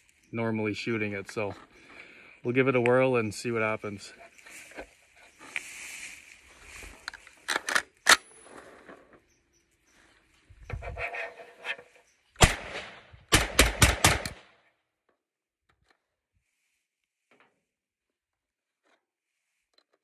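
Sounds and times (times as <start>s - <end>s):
rifle shots: 12.4s - 14.6s.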